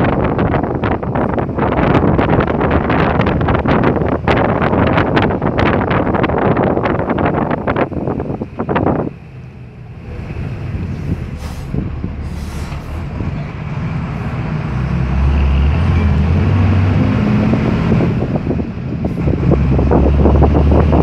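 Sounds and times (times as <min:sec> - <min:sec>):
vehicle engine and road drone: 0:00.0 - 0:21.0
short hisses: 0:11.3 - 0:13.0.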